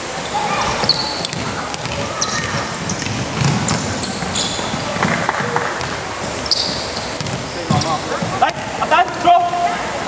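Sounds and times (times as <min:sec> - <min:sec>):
sneakers squeaking on court: 0:00.2 - 0:09.2
basketball dribbling on wooden floor: 0:01.3 - 0:03.9, 0:07.1 - 0:08.4.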